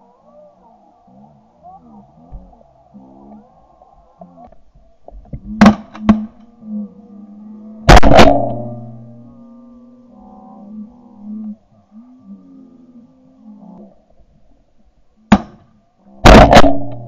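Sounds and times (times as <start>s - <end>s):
shotgun shots: 7.9s - 8.7s, 15.3s - 15.6s, 16.2s - 17.0s.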